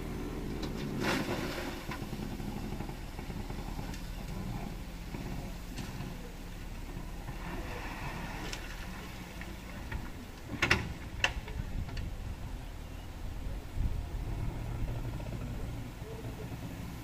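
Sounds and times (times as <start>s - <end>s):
diesel engines running: 0.0s - 17.0s
soil and rocks into truck bed: 0.5s - 2.4s.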